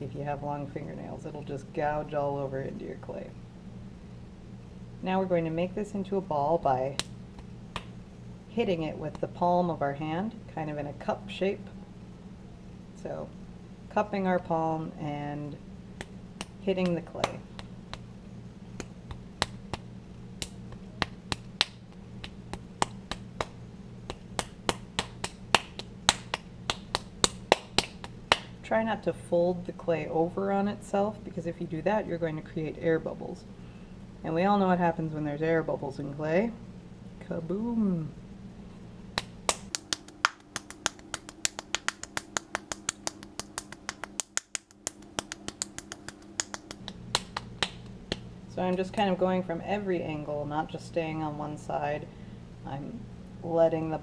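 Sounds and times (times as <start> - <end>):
palms slapping clay: 6.9 - 8.0, 16.0 - 18.2, 18.8 - 28.6, 39.1 - 48.3.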